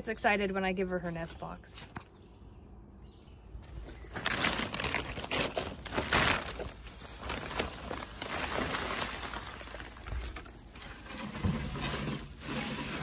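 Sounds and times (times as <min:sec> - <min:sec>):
dry hay rustling: 0:03.8 - 0:13.0
plastic tarp crinkling: 0:03.9 - 0:13.0.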